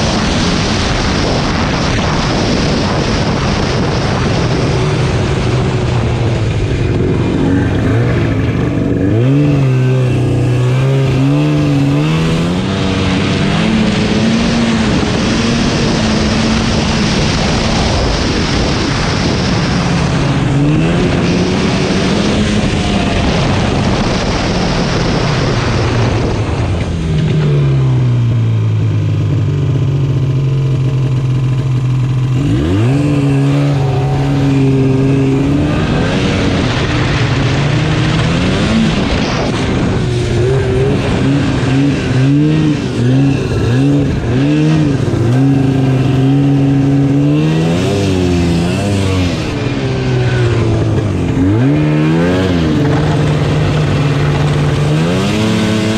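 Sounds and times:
snowmobile engine revving: 0.0s - 55.9s.

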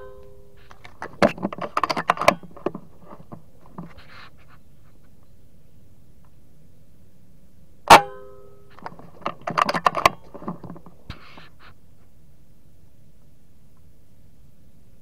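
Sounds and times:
metallic ring: 0.0s - 0.7s, 7.9s - 8.8s
rattling and clattering with clicks: 0.6s - 4.0s, 8.8s - 11.0s.

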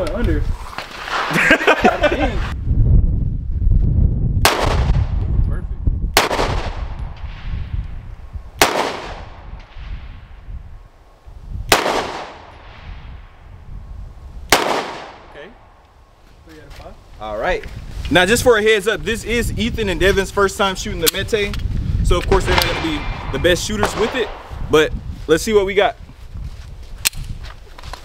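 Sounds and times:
pistol shots with echo: 6.2s - 7.0s, 8.6s - 9.4s, 11.7s - 12.7s, 14.5s - 15.3s, 22.5s - 24.5s.

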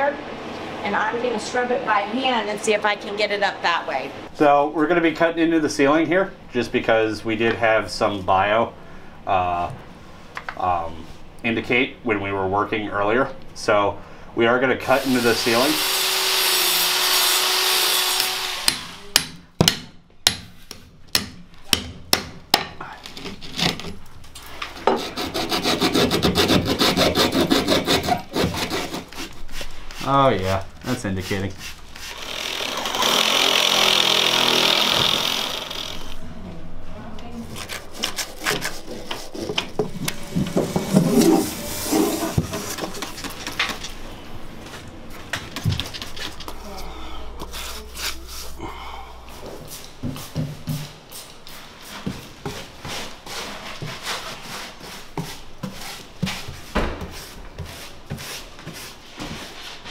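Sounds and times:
power saw cutting ceiling: 14.9s - 19.2s, 32.0s - 36.2s, 40.0s - 43.0s
hand saw rasping: 24.8s - 29.4s, 31.6s - 36.2s, 37.6s - 39.8s.

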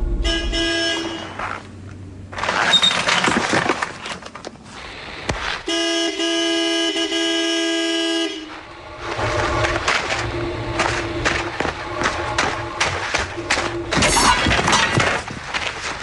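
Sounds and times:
vehicle horn blast: 0.0s - 1.6s, 5.7s - 9.8s.

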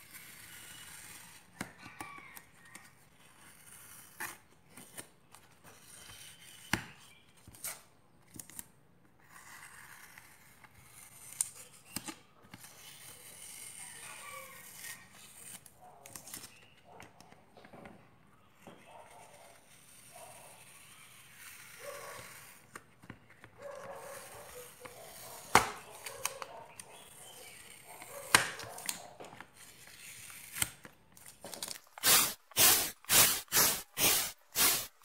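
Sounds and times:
paper crinkling and tearing: 28.6s - 35.0s.

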